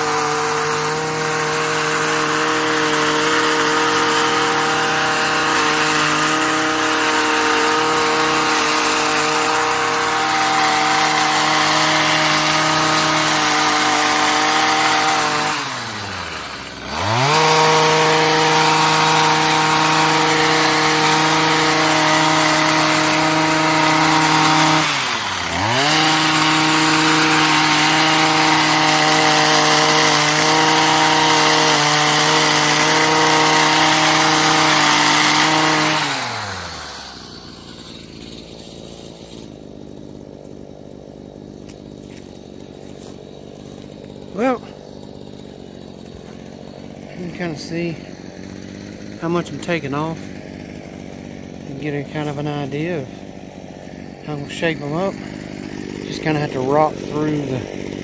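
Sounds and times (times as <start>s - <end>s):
hedge trimmer engine revving: 0.0s - 58.0s.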